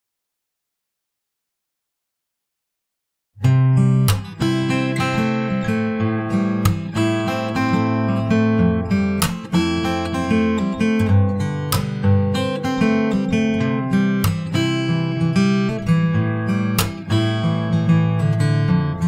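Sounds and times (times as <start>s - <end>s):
strummed acoustic guitar: 3.4s - 19.0s.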